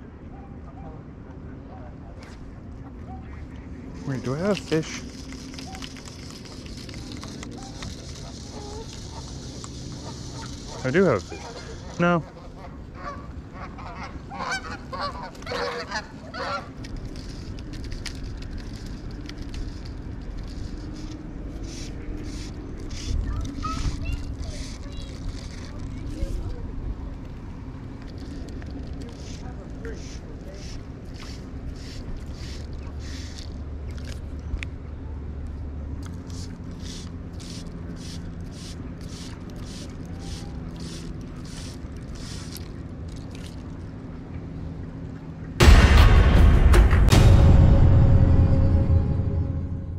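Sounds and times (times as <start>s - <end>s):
fly line swishing through guides: 3.1s - 12.4s, 14.4s - 26.7s, 36.0s - 43.8s
waterfowl honking: 8.2s - 16.7s
low rumble: 45.4s - 49.9s.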